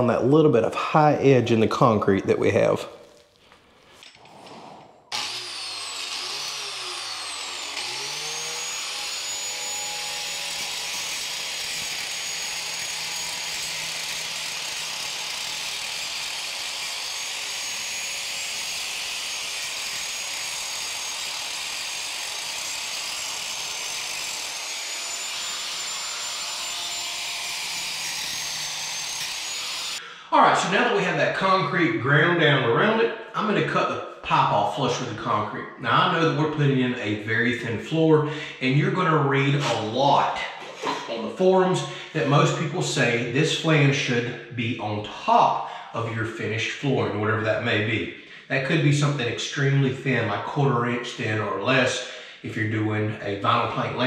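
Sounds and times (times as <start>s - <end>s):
angle grinder grinding concrete: 4.9s - 30.0s, 39.4s - 40.0s.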